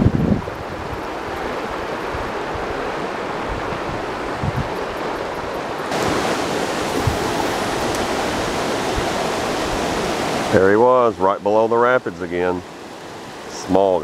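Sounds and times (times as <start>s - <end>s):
wind bumps on microphone: 0.0s - 10.6s
waterfall and rapids rushing: 0.0s - 14.0s.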